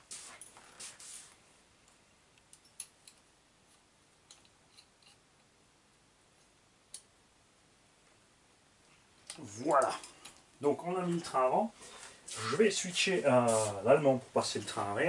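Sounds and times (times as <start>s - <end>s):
small parts scraping and clicking: 1.8s - 5.3s.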